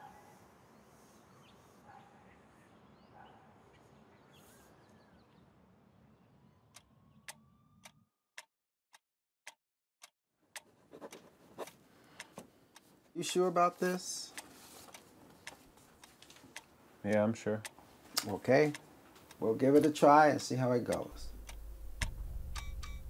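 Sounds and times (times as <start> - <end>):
sharp regular ticking: 11.6 - 23.0.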